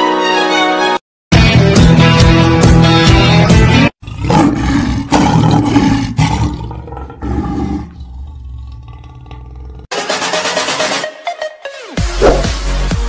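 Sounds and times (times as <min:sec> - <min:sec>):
lion roaring: 0:04.0 - 0:09.9.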